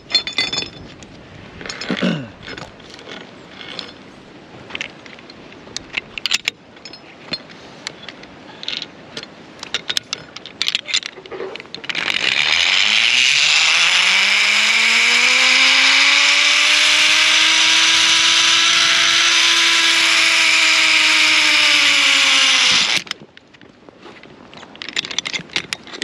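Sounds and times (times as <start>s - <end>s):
pulley wheels whining on cable: 11.8s - 23.1s.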